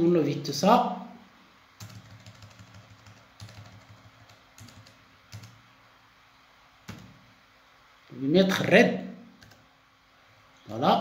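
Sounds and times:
keyboard keys clicking: 1.8s - 5.6s.

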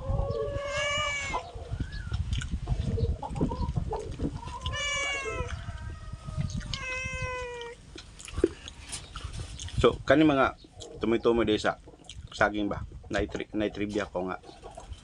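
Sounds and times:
cat meowing: 0.4s - 1.5s, 4.6s - 5.5s, 6.4s - 7.8s
soft handling and chewing: 2.1s - 2.8s, 4.0s - 6.8s, 7.4s - 10.0s.

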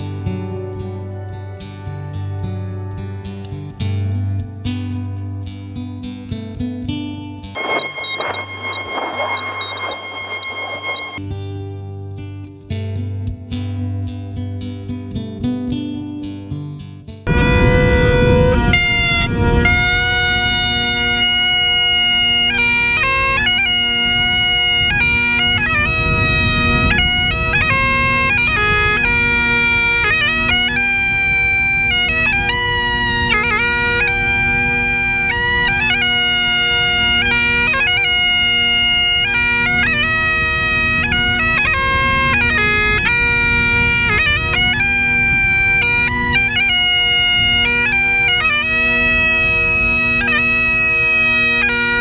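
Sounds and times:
bagpipe drones: 17.3s - 52.0s
bagpipes playing a melody: 17.3s - 52.0s.

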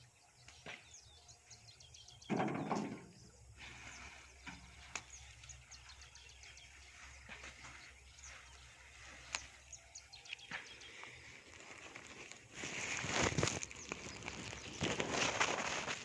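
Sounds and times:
plant foliage rustling: 3.6s - 16.0s.

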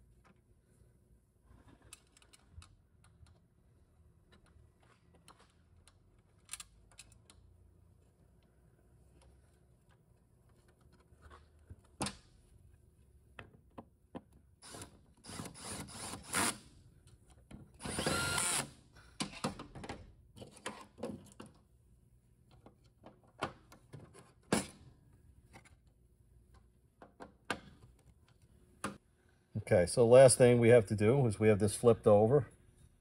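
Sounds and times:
cordless drill running: 17.8s - 18.7s.

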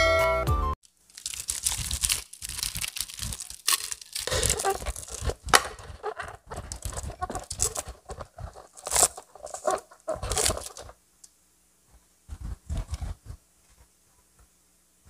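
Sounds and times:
crunching and chewing fried chicken: 0.8s - 11.0s
crackles of crisp coating: 0.8s - 14.5s.

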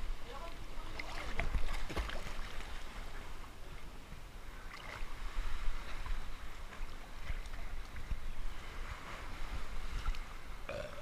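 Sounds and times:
seawater sloshing and splashing: 0.7s - 3.4s.

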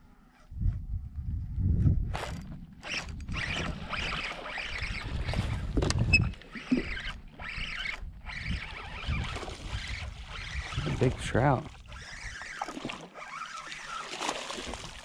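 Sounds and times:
low rumble: 0.0s - 3.8s
fishing reel cranking: 2.2s - 14.4s.

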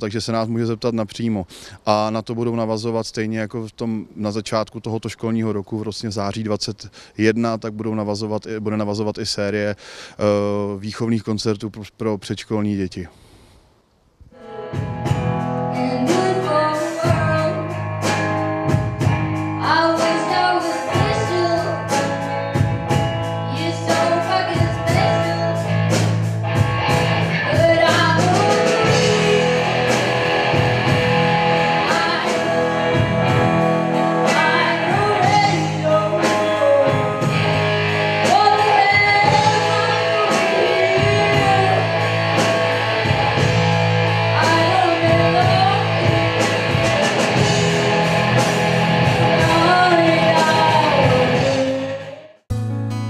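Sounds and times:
drum kit: 14.3s - 53.0s
electric guitar: 14.3s - 53.0s
girl singing into a microphone: 15.7s - 17.8s, 19.6s - 22.2s, 23.5s - 25.7s, 27.4s - 29.6s, 31.8s - 32.6s, 33.9s - 37.5s, 38.2s - 42.1s, 44.4s - 46.1s, 49.3s - 52.3s.

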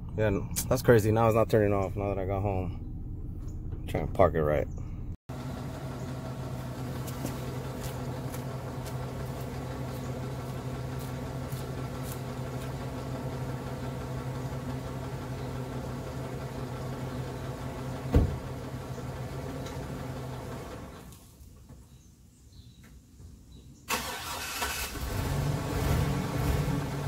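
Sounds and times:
truck engine idling with knock: 5.3s - 20.9s
loud thump: 18.1s - 18.5s.

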